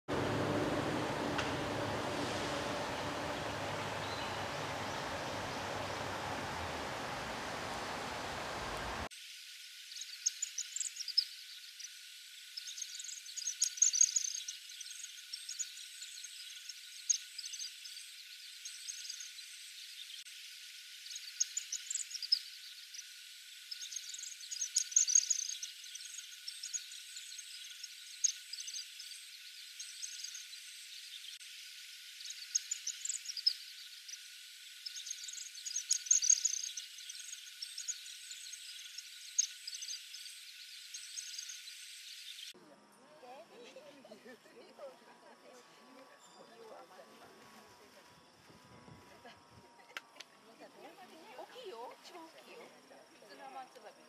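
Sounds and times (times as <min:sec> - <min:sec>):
birds twittering: 0:00.1 - 0:09.1, 0:12.6 - 0:20.3, 0:21.0 - 0:31.4, 0:32.2 - 0:42.5
steady hiss: 0:00.1 - 0:42.6.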